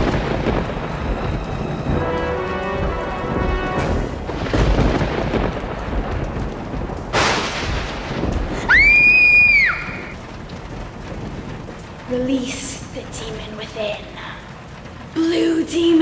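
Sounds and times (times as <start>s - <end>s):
sharp thunderclap: 0.0s - 15.2s
rolling thunder: 0.0s - 16.0s
steady rain: 0.0s - 16.0s
shrill scream: 8.7s - 10.2s.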